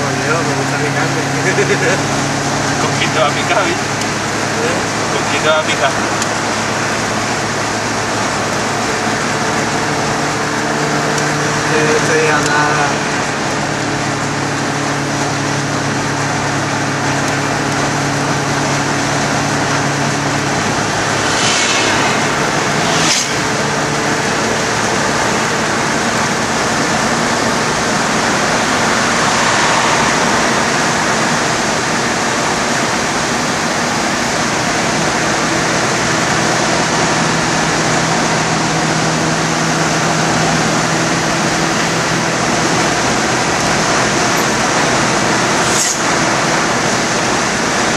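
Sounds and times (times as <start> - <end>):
low engine hum: 0.0 - 35.9
road and wind noise: 0.0 - 47.9.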